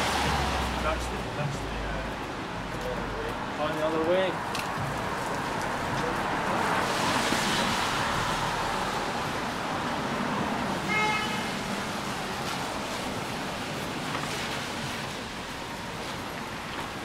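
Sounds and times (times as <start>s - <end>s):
hiss of passing cars: 5.1s - 17.0s
car horn toot: 10.9s - 11.6s.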